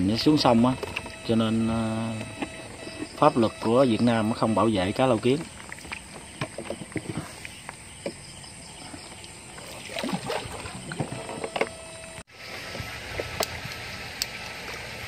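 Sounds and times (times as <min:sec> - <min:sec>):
faint high whine: 0:00.0 - 0:05.5, 0:10.0 - 0:12.3
water sloshing: 0:02.2 - 0:11.6.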